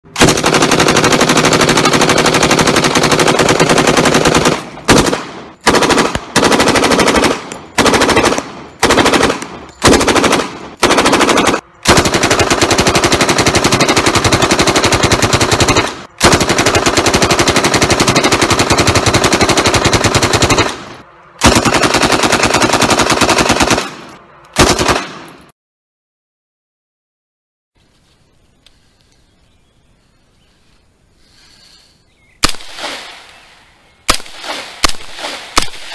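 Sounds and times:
rapid automatic gunfire: 0:00.2 - 0:25.3.

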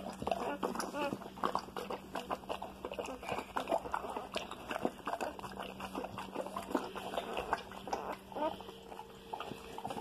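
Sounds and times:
dog licking wetly: 0:00.0 - 0:10.0.

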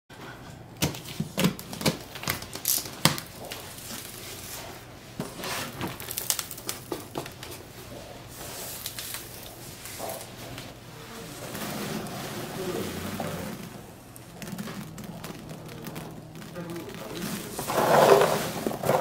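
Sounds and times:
cardboard flaps rustling: 0:00.8 - 0:19.0
cardboard box crackling: 0:01.0 - 0:07.7, 0:10.9 - 0:19.0.

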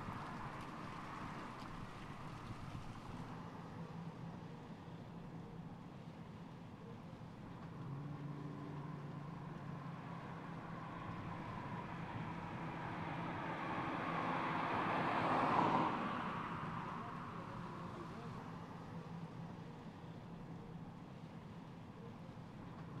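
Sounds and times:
car driving past: 0:07.8 - 0:18.6.

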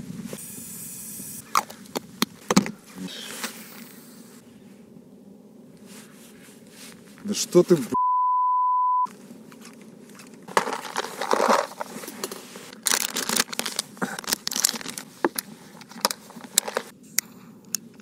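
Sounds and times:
censor bleep: 0:08.0 - 0:09.1
plastic boxes clicking and rattling: 0:10.5 - 0:16.9.

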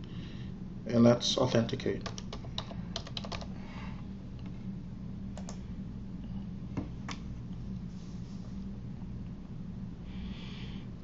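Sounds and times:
steady low hum: 0:00.0 - 0:11.0
keyboard typing: 0:02.0 - 0:03.5.

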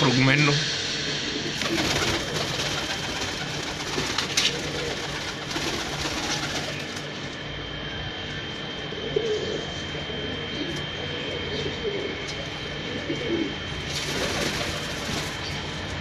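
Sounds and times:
pigeons cooing: 0:01.1 - 0:16.0
pigeon wing flaps: 0:01.6 - 0:07.2, 0:13.9 - 0:15.6.

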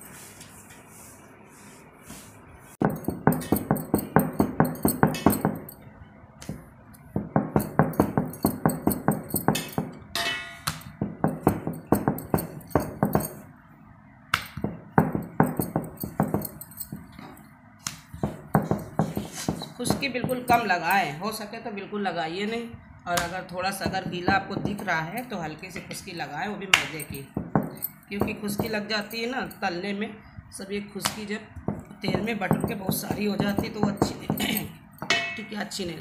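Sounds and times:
rolling pin knocking on board: 0:06.5 - 0:10.0, 0:10.7 - 0:13.4, 0:14.6 - 0:16.5, 0:18.2 - 0:20.7, 0:23.2 - 0:25.1, 0:26.8 - 0:28.9, 0:31.6 - 0:35.2.

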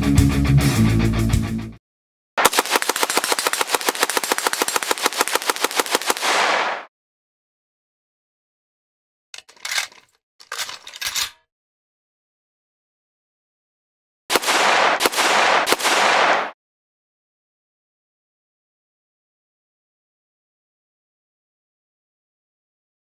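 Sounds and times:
rifle full-auto burst: 0:02.4 - 0:06.9, 0:14.3 - 0:16.6
metallic magazine clicking: 0:09.4 - 0:11.4.

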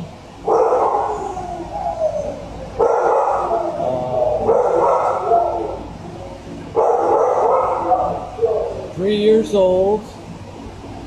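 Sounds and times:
many dogs barking: 0:00.4 - 0:05.9, 0:06.7 - 0:09.0.

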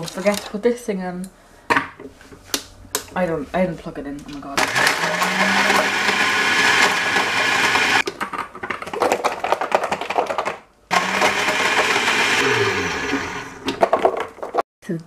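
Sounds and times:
blender motor crushing ice: 0:04.6 - 0:08.1, 0:09.0 - 0:14.2.

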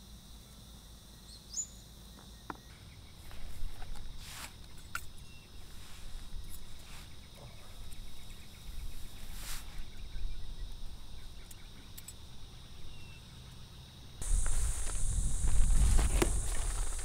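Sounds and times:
insects chirring: 0:00.0 - 0:17.0
brief rustle: 0:14.2 - 0:17.0
low wind rumble: 0:14.2 - 0:17.0.

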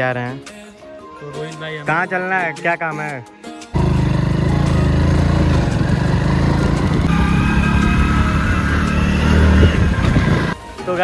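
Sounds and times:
motorcycle engine running: 0:03.8 - 0:10.6.

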